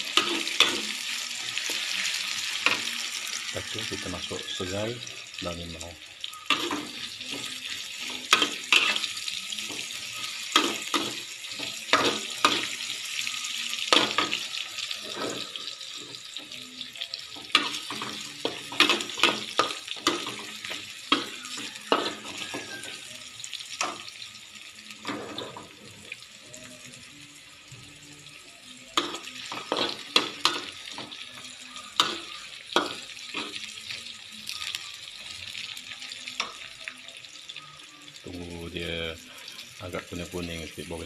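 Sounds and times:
spatula scraping and knocking wok: 0.0s - 3.0s, 6.5s - 9.1s
food sizzling in hot oil: 0.0s - 41.0s.

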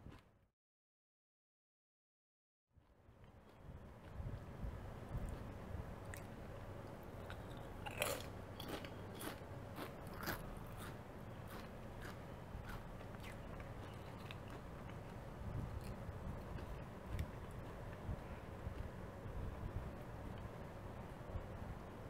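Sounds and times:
potato chips crunching: 7.2s - 15.2s.

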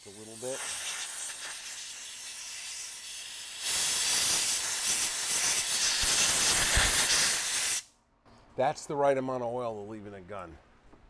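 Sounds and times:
compressed air blow gun hissing: 0.0s - 7.9s.

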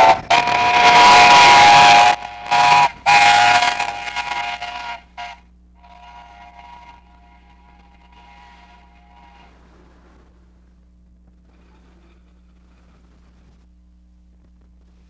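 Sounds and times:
steam whistle blasts: 0.0s - 9.7s.

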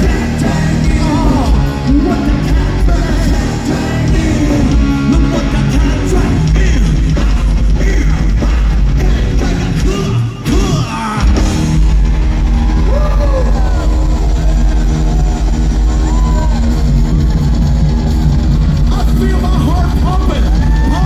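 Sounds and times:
lead singer's voice: 0.0s - 11.4s
live rock band playing: 0.0s - 21.0s.

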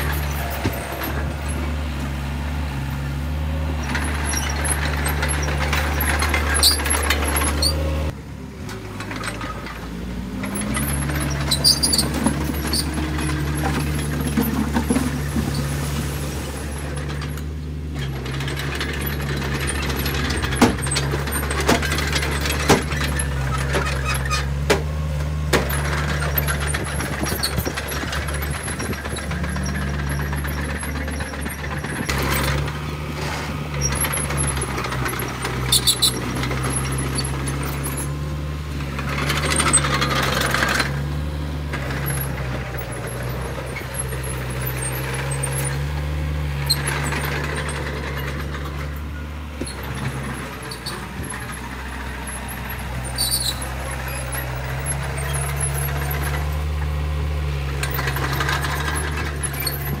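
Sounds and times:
bulldozer engine running: 0.0s - 60.0s
metallic clinks and squeaks: 10.5s - 15.8s, 25.7s - 32.7s, 33.8s - 38.3s, 46.6s - 56.7s, 57.8s - 60.0s.

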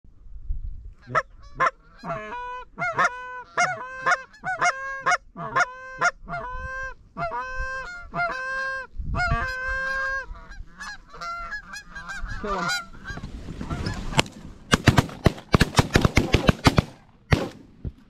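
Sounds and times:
goose honking: 1.0s - 14.2s.

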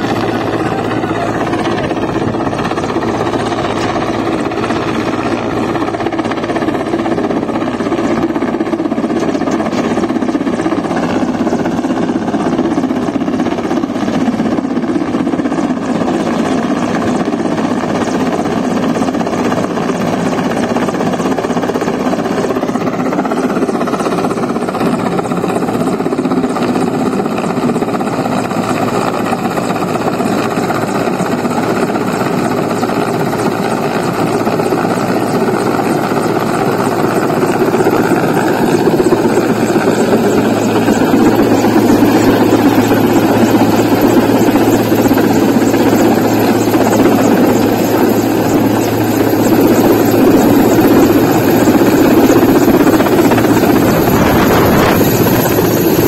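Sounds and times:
helicopter rotor and turbine noise: 0.0s - 56.0s.

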